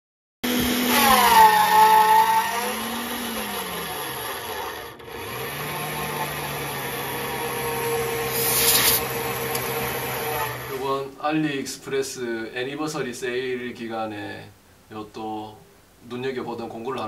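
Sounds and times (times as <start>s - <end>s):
drill press motor whine: 0.5s - 10.8s.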